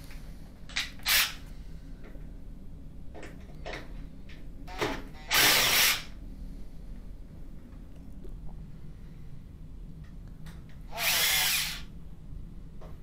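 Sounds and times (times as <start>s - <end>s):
power screwdriver bursts: 1.0s - 1.4s, 5.3s - 6.1s, 10.9s - 11.9s.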